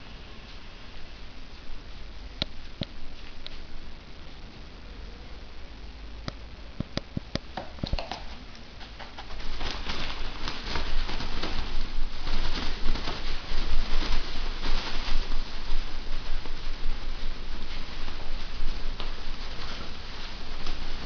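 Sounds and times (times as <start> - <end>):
toilet paper rustling and flapping: 7.5 - 21.0.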